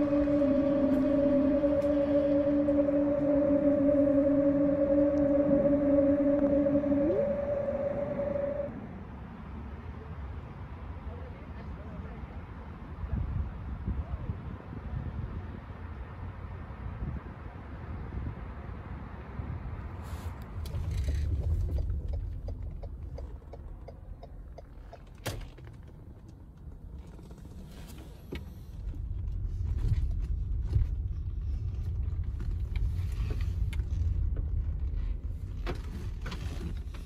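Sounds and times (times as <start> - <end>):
car engine and road rumble: 14.6 - 37.0.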